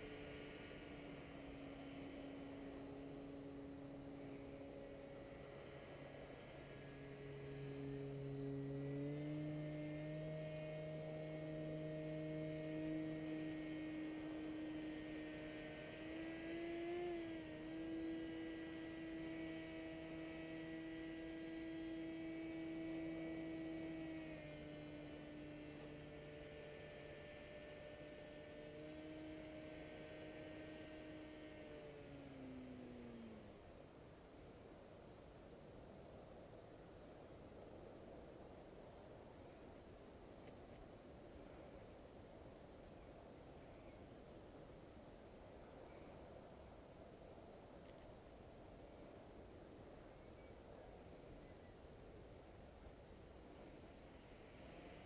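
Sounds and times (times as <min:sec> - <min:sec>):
paramotor engine and propeller droning: 0:00.0 - 0:36.2, 0:42.6 - 0:46.7, 0:53.2 - 0:55.0.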